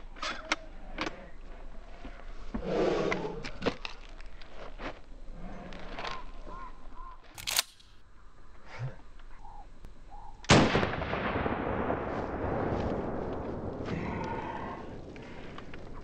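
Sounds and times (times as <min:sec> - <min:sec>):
shotgun pump clack: 0:07.4 - 0:08.0.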